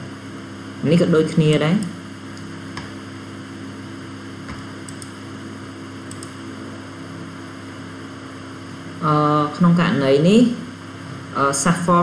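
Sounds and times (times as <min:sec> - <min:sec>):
electrical hum and hiss: 0:00.0 - 0:12.0
faint mouse clicks: 0:06.1 - 0:06.4.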